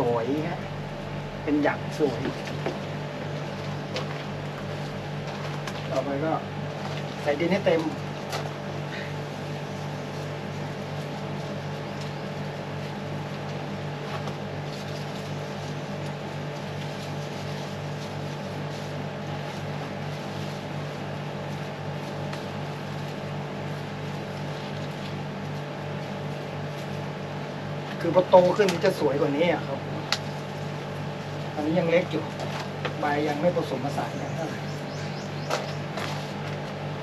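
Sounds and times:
motor humming: 0:00.0 - 0:12.6.

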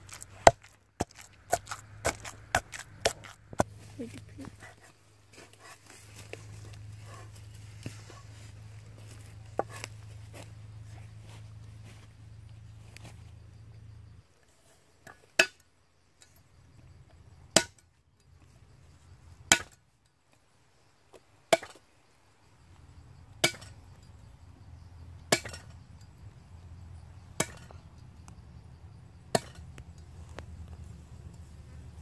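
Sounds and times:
knife chopping on wooden block: 0:00.1 - 0:03.7.

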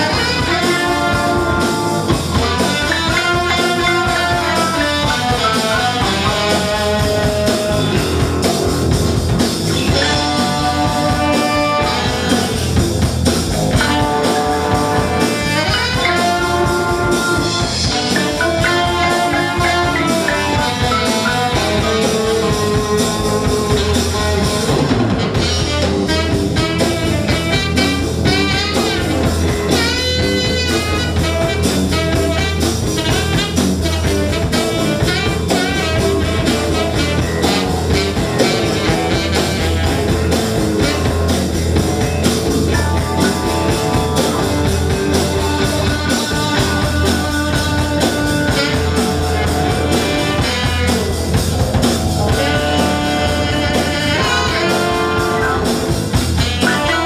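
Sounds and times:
electric guitar: 0:00.0 - 0:57.0
live blues-rock band playing: 0:00.0 - 0:57.0
saxophone: 0:00.0 - 0:57.0.

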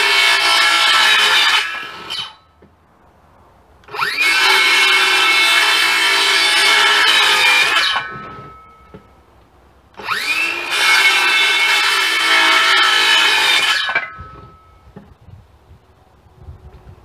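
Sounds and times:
circular saw cutting wood: 0:00.0 - 0:02.4, 0:03.9 - 0:08.5, 0:10.0 - 0:14.5.

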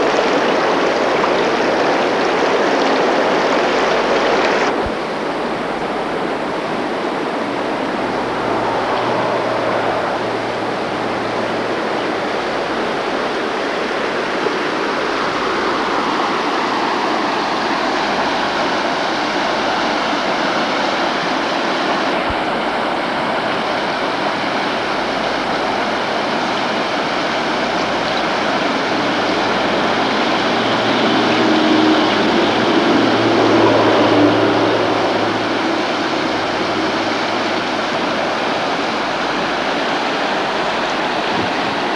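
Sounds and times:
river rushing over rocks: 0:00.0 - 0:41.9
low hum: 0:04.6 - 0:13.3, 0:23.9 - 0:39.6.

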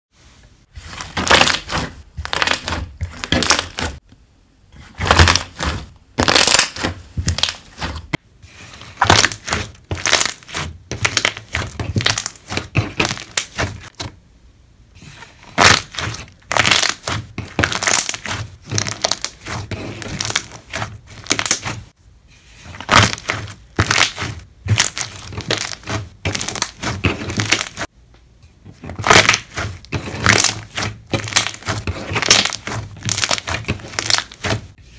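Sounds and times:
slime bubbles popping and crackling: 0:01.1 - 0:03.9, 0:06.2 - 0:07.7, 0:09.0 - 0:13.9, 0:15.6 - 0:21.7, 0:22.8 - 0:27.9, 0:28.9 - 0:34.5.

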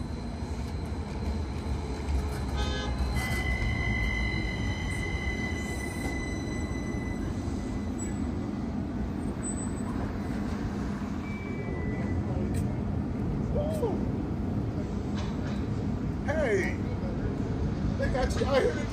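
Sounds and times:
high wheel squeal: 0:00.0 - 0:08.6, 0:11.1 - 0:12.4
light rail train rumbling: 0:00.0 - 0:18.9.

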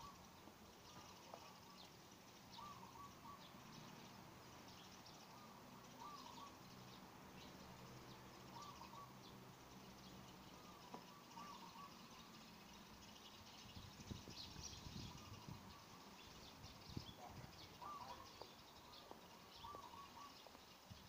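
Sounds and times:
bird call: 0:00.0 - 0:04.2, 0:04.8 - 0:06.7, 0:08.5 - 0:09.3, 0:10.5 - 0:12.5, 0:14.4 - 0:20.9
faint high chirps: 0:00.0 - 0:21.0.

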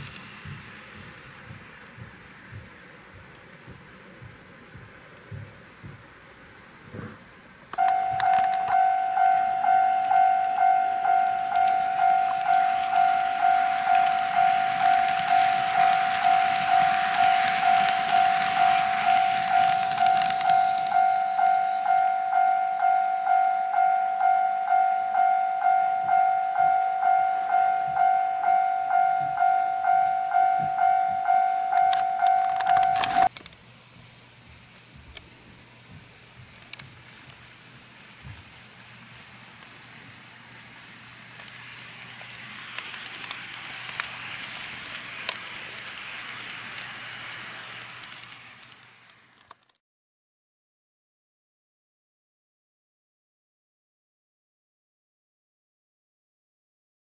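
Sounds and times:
level crossing alarm dinging: 0:07.8 - 0:33.3
sharp clicks: 0:41.4 - 0:49.8.

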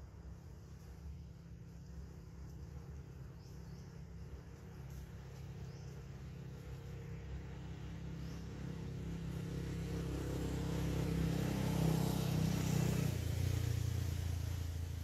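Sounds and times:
vehicle engine passing by: 0:05.0 - 0:15.0.

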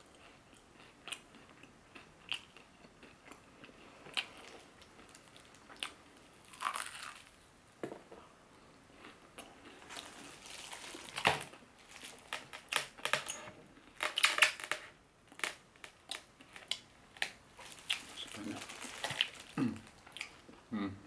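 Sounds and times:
crunching fried chicken: 0:01.1 - 0:07.4, 0:14.0 - 0:20.4
plastic gloves crinkling: 0:09.8 - 0:13.3, 0:15.4 - 0:20.5.

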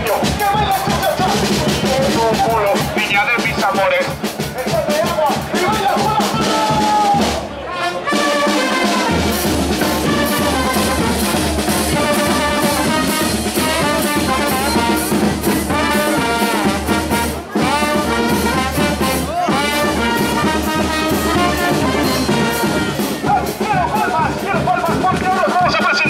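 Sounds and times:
street brass band playing: 0:00.0 - 0:26.0.

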